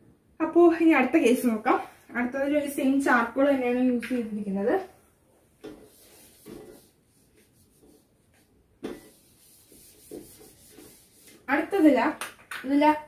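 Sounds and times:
duster wiping a whiteboard: 5.6 - 12.1.

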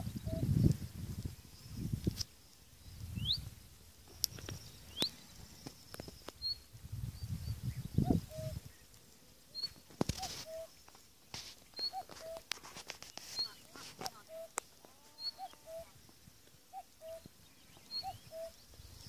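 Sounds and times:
low bird call: 0.0 - 0.5, 4.4 - 8.9, 9.5 - 10.8, 11.6 - 12.5, 13.1 - 16.0, 16.7 - 19.0
birds chirping and whistling: 2.8 - 3.5, 4.3 - 8.8, 9.6 - 10.7, 11.7 - 12.4, 13.2 - 14.6, 15.2 - 15.9, 16.7 - 19.0.

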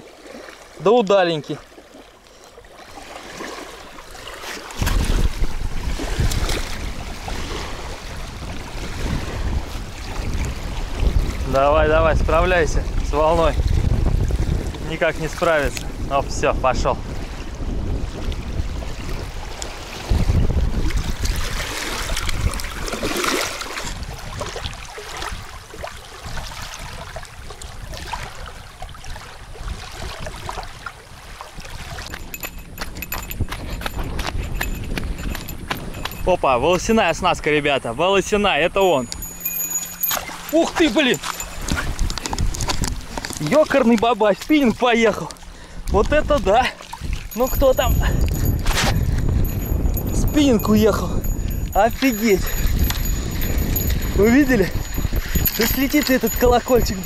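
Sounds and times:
small waves lapping on pebbles: 0.0 - 11.5, 17.1 - 32.3
water splashing: 0.0 - 11.5, 18.2 - 36.5, 38.2 - 57.0
wind buffeting microphone: 3.0 - 57.0.

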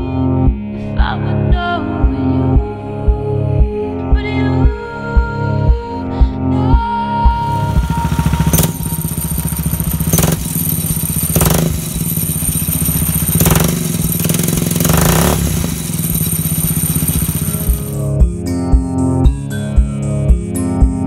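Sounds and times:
small engine revving: 7.3 - 18.1.

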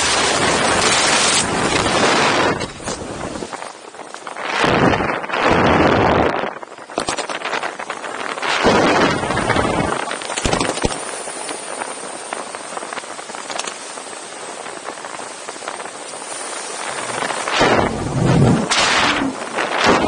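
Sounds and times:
wind rushing over microphone: 0.0 - 20.0
brief crackles: 6.9 - 7.7, 10.2 - 11.1.

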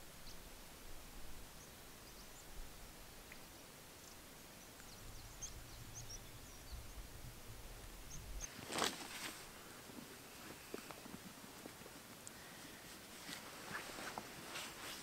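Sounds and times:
small birds chirping: 1.5 - 8.5
low background rumble: 4.0 - 8.5.

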